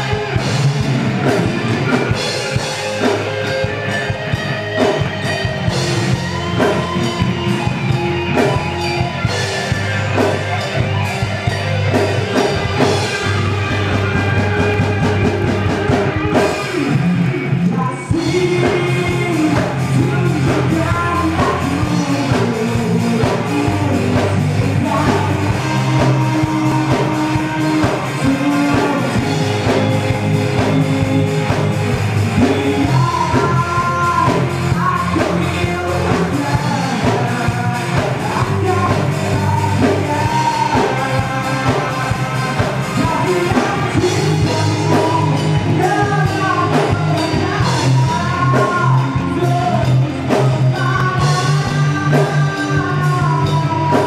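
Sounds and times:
bass guitar: 0.0s - 54.0s
drum kit: 0.0s - 54.0s
electric guitar: 0.0s - 54.0s
male lead vocals: 0.0s - 54.0s.

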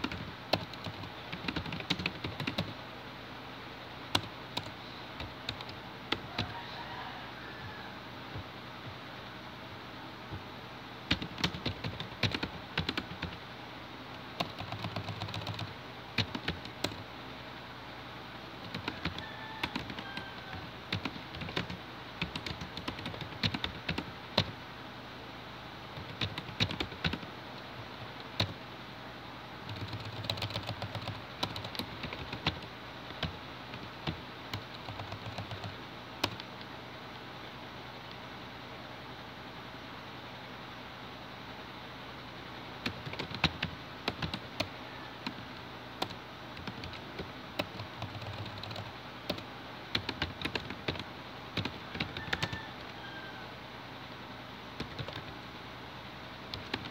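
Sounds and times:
typing on computer keyboard: 0.0s - 2.7s, 4.1s - 6.5s, 11.1s - 13.4s, 14.4s - 17.0s, 18.6s - 24.5s, 26.0s - 27.2s, 28.3s - 28.6s, 29.7s - 36.5s, 42.8s - 45.4s, 46.0s - 52.6s, 54.8s - 55.4s, 56.5s - 56.9s.

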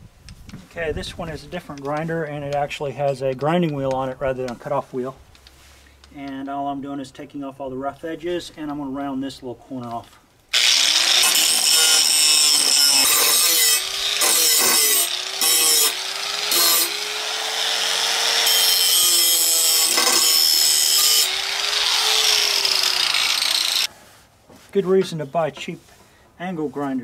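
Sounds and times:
angle grinder grinding steel: 10.5s - 23.9s.

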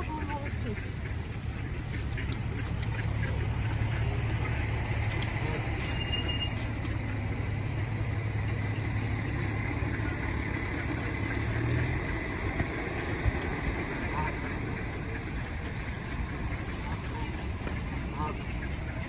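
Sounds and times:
vehicle engine humming: 0.0s - 19.0s
brief high squeak: 5.8s - 6.7s.

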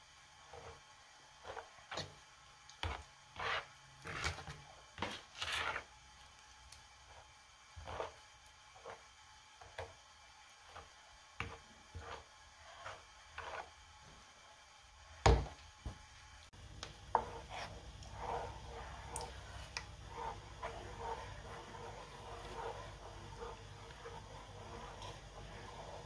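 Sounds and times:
spatula scraping in a pan: 0.4s - 2.2s, 2.8s - 6.0s, 7.1s - 10.0s, 10.6s - 14.1s, 16.8s - 26.0s.

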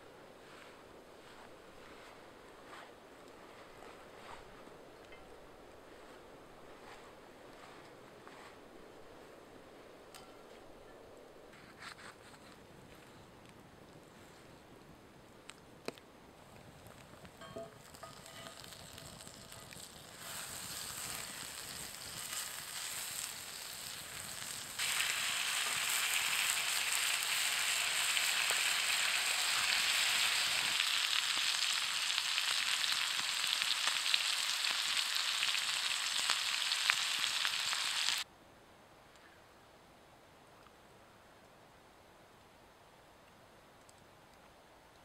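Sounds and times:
butter sizzling in a pan: 17.4s - 38.2s
meat frying in hot fat: 17.8s - 38.3s.

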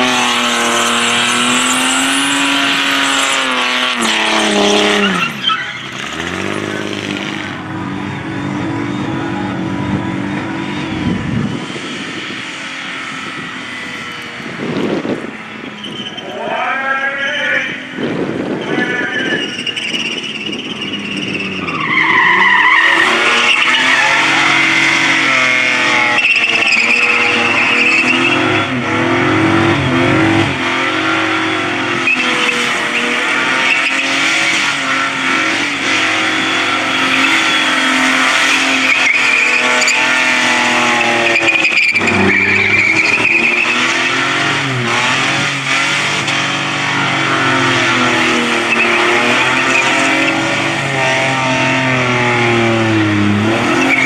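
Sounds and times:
car engine at high revs: 0.0s - 54.0s
tyres squealing: 0.1s - 7.6s, 15.6s - 17.4s, 18.6s - 30.4s, 31.0s - 52.4s, 53.6s - 54.0s.

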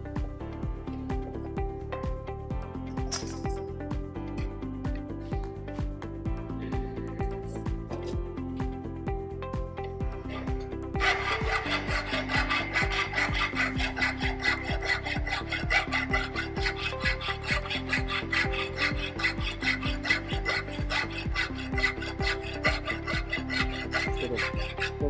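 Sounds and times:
hand file rasping on metal: 10.0s - 25.0s.

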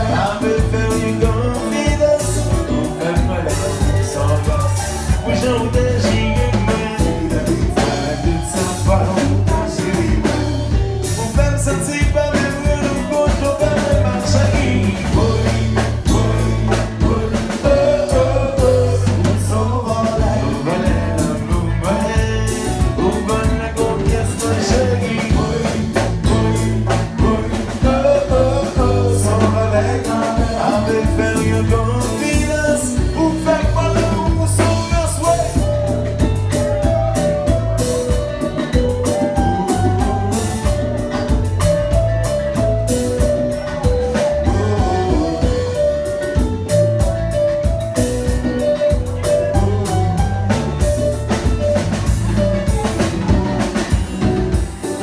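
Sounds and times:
person singing into a microphone: 0.0s - 35.7s, 43.6s - 46.4s, 49.1s - 50.8s
acoustic guitar: 0.0s - 55.0s
drum kit: 0.0s - 55.0s
electric guitar: 0.0s - 55.0s.

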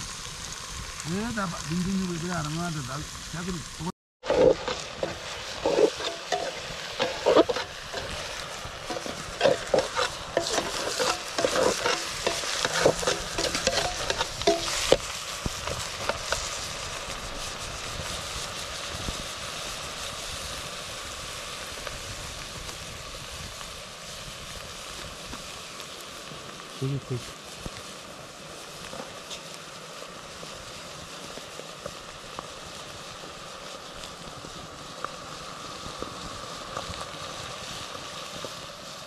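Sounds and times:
meat sizzling in a pot: 0.0s - 39.0s
ladle scraping a pot: 4.2s - 15.0s.

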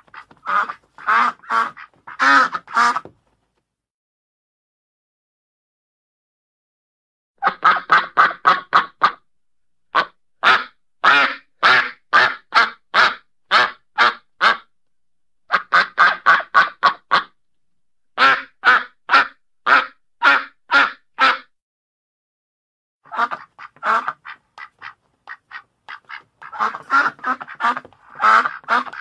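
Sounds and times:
duck quacking: 0.0s - 3.1s, 7.4s - 9.2s, 9.9s - 14.7s, 15.5s - 17.4s, 18.2s - 21.5s, 23.1s - 29.0s.

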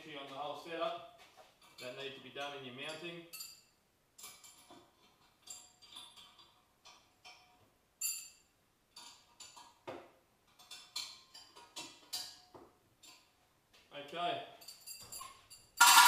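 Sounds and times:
metal tools clinking: 2.9s - 9.8s, 14.5s - 16.0s.

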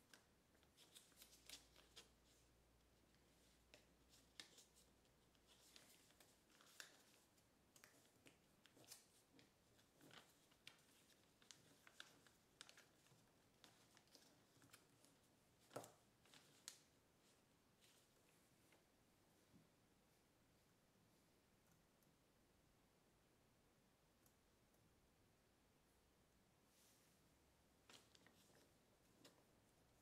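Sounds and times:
paper crinkling and crackling: 0.0s - 17.0s, 27.8s - 30.0s.

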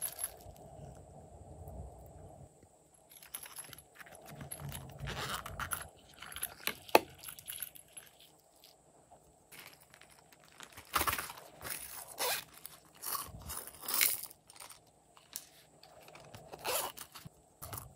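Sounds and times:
silicone bags rubbing and scraping: 9.5s - 17.9s.

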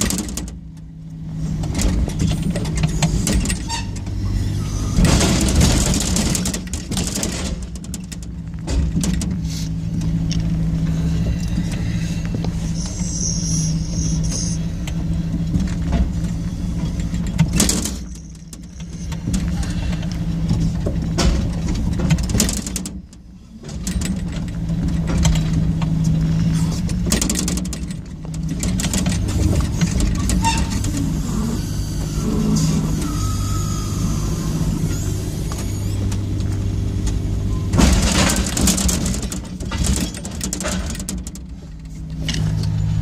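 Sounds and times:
knocks and rattles: 0.0s - 0.9s, 1.5s - 4.2s, 4.9s - 10.6s, 14.9s - 31.2s, 36.0s - 43.0s
heavy vehicle engine under load: 0.0s - 43.0s.

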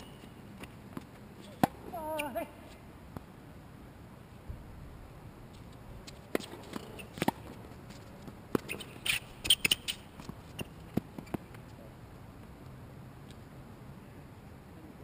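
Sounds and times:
shoes scuffing on court: 5.5s - 11.7s.

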